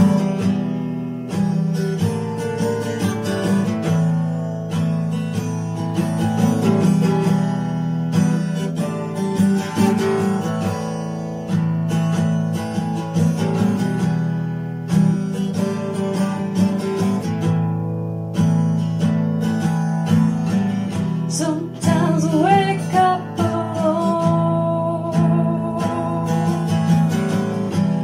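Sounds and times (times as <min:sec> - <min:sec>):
strummed acoustic guitar: 0:00.0 - 0:28.0.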